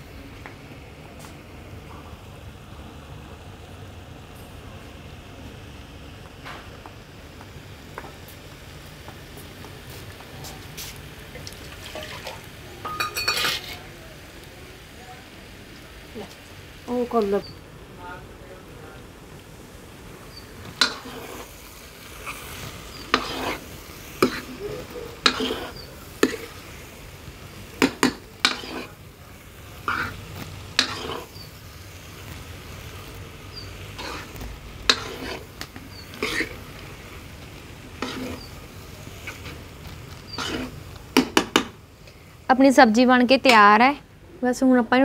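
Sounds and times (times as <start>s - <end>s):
metal ladle scraping a pan: 11.8s - 13.9s, 20.3s - 21.6s, 22.2s - 26.9s, 27.8s - 29.0s, 29.8s - 31.6s, 33.5s - 37.0s, 38.0s - 41.7s.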